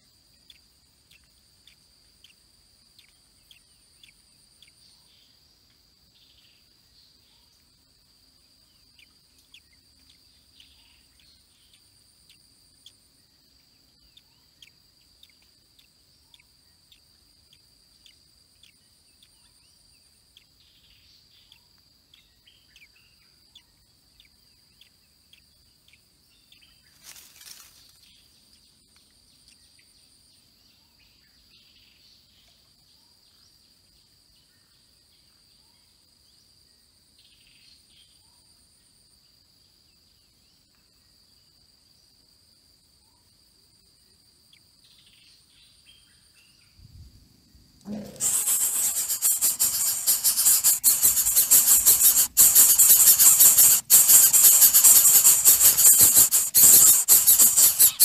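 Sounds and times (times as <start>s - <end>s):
high insect trill: 26.7s - 28.2s, 47.9s - 58.0s
noisy rustle burst: 47.9s - 58.0s
high bird chirps: 48.1s - 58.0s.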